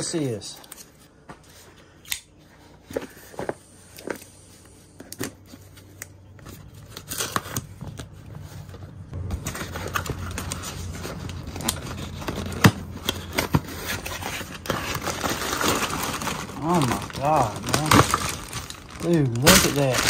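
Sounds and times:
cardboard box tearing and rustling: 9.2s - 20.0s.

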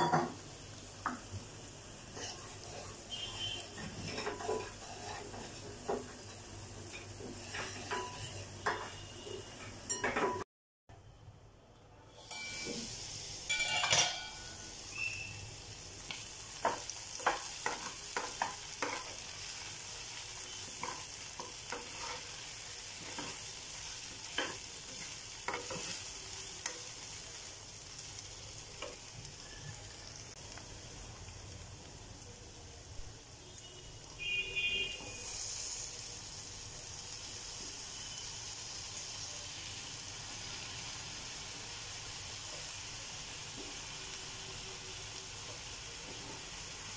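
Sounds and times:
potatoes sizzling in a pan: 0.0s - 9.5s, 12.1s - 46.9s
spatula scraping a pan: 2.0s - 9.7s, 16.6s - 26.8s
metal pan lid clanking: 13.5s - 14.6s
ringing metal clink: 13.5s - 14.6s.

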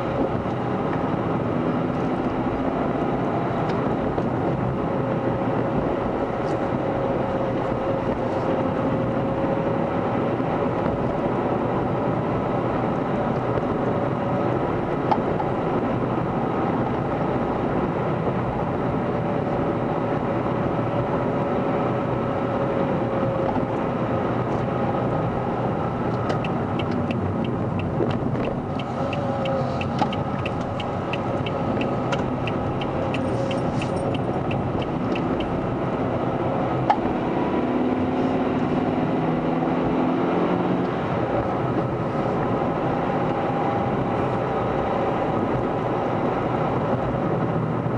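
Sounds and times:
car engine and road rumble: 0.0s - 47.9s
regular ticking: 26.3s - 35.6s.

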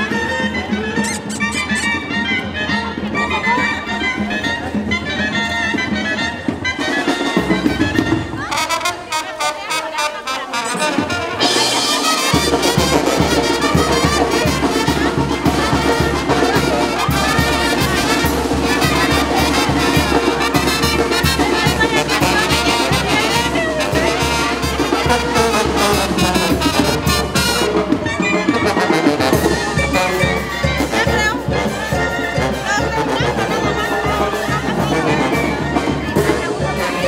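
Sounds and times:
brass band playing: 0.0s - 37.0s.

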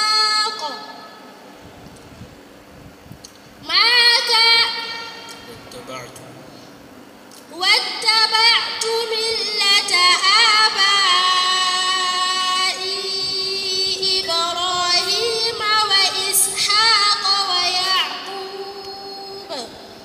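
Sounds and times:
girl reciting melodically: 0.0s - 1.0s, 3.6s - 5.5s, 7.4s - 20.0s.

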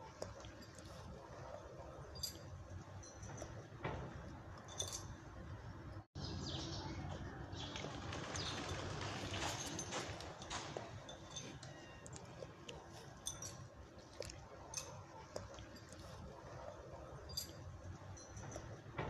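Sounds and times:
dry leaves crackling: 7.6s - 10.5s.

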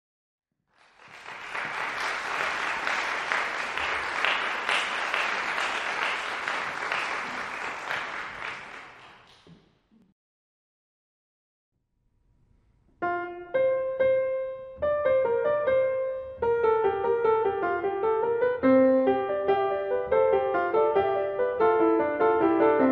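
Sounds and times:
audience applauding: 0.7s - 9.5s.

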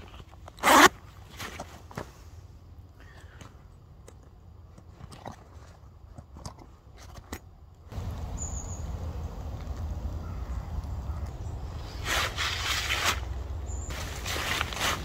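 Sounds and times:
zip and fabric rustling: 0.6s - 1.6s
steady low rumble: 7.9s - 12.0s.

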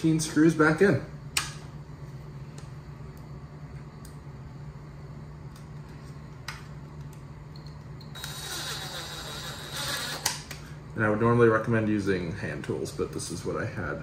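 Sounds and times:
drill motor whirring: 8.1s - 10.4s.

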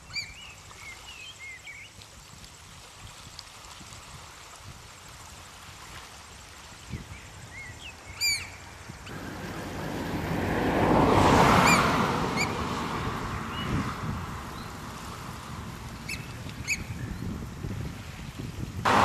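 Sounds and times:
surf washing over rocks: 8.7s - 19.0s
oystercatcher piping calls: 16.1s - 17.1s.

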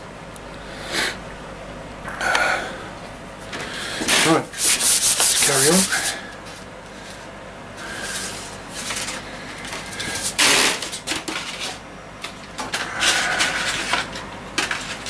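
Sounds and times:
sandpaper rubbing on wood: 4.1s - 6.2s.

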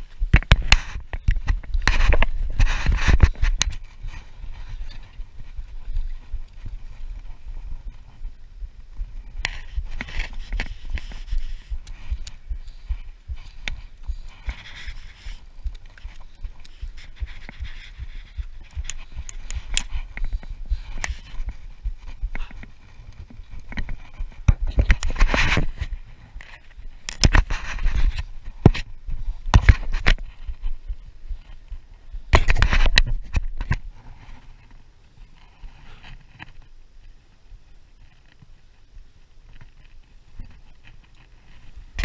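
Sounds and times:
wind on microphone: 0.0s - 34.4s
heavy breathing: 11.1s - 15.5s.

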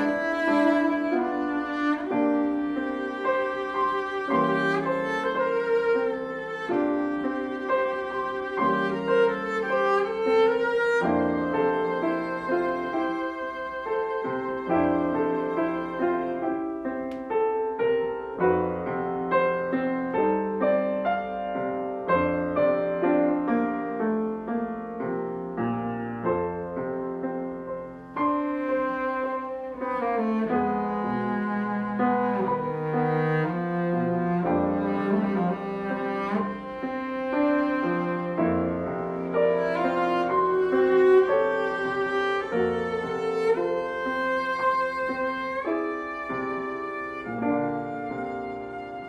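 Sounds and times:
bowed cello: 0.0s - 25.2s, 25.8s - 49.0s
piano accompaniment: 0.0s - 49.0s.

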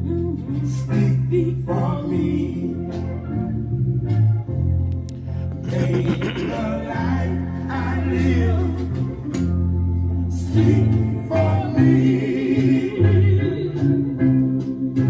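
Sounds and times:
instrumental bass accompaniment: 0.0s - 15.0s
voices singing a gospel hymn: 5.6s - 9.5s, 10.2s - 14.2s.

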